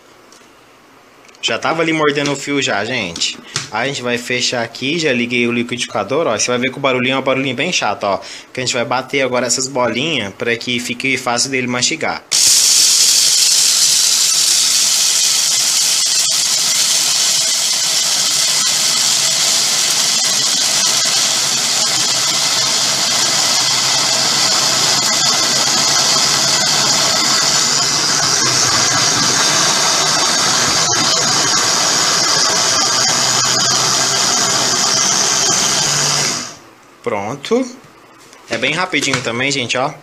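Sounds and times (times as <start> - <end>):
blender grinding dry pellets: 12.3 - 36.6.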